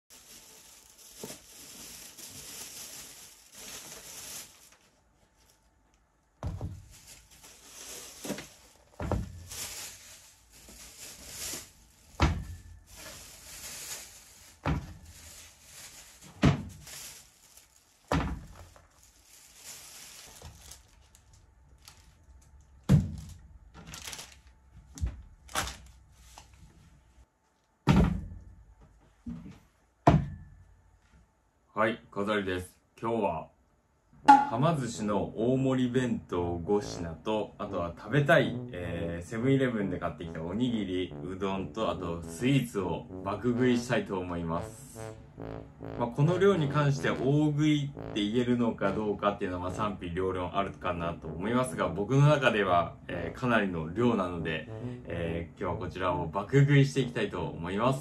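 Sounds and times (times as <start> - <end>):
plastic packaging crinkling: 0.1 - 5.7, 6.7 - 22.3, 23.2 - 24.6.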